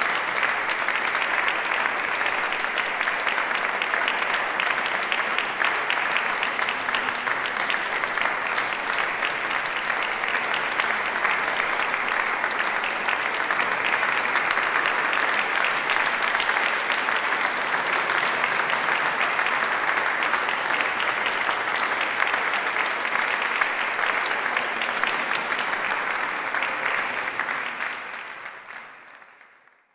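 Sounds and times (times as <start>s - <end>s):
audience applause: 0.0s - 29.9s.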